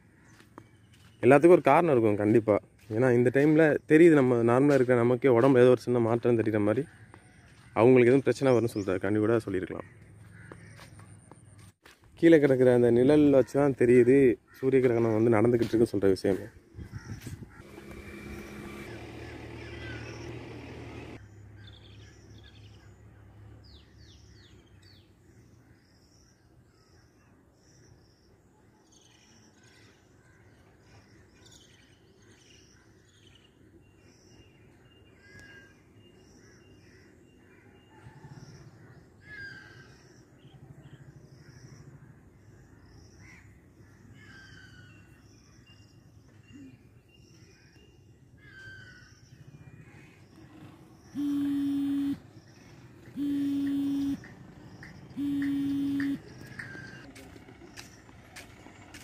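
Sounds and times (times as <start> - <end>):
birds chirping: 0.0 - 28.3, 30.6 - 59.0
lower falling bird calls: 16.8 - 22.9.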